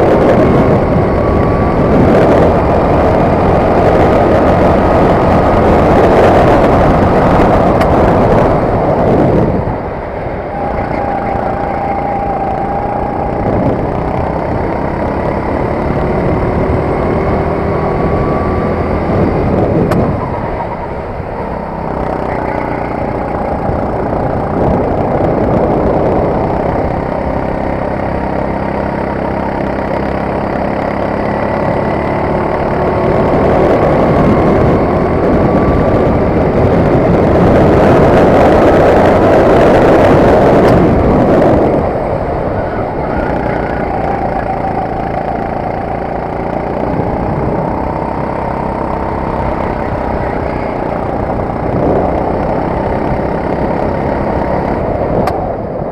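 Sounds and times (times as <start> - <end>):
kart engine revving: 0.0 - 55.9
rush of noise: 0.0 - 55.9.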